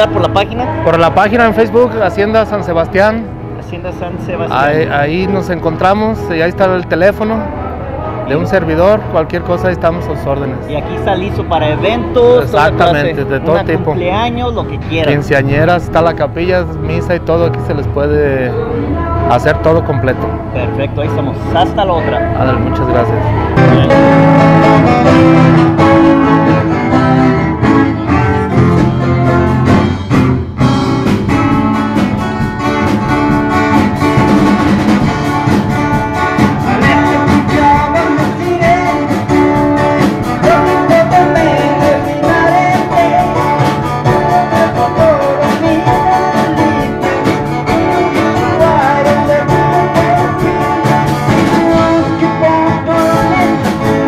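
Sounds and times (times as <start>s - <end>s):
guitars: 0.0s - 54.0s
person singing: 18.4s - 30.0s, 36.4s - 54.0s
steady drum beat: 23.5s - 54.0s.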